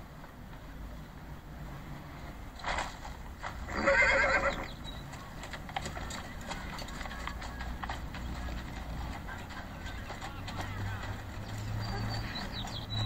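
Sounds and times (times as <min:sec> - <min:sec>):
hooves clopping: 0:00.0 - 0:13.0
horse whinnying: 0:03.7 - 0:04.8.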